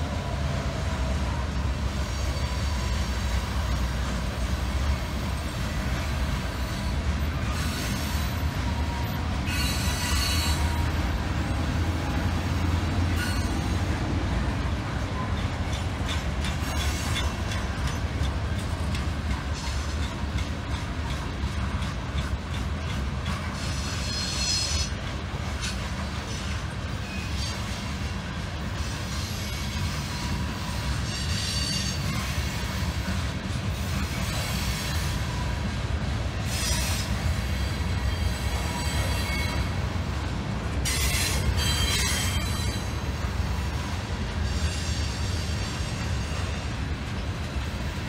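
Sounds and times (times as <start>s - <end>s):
train rumbling past: 0.0s - 48.0s
wheels clicking over rail joints: 1.0s - 44.9s
high-pitched wheel squeal: 6.6s - 11.0s, 13.0s - 13.8s, 29.0s - 32.6s, 40.8s - 43.0s.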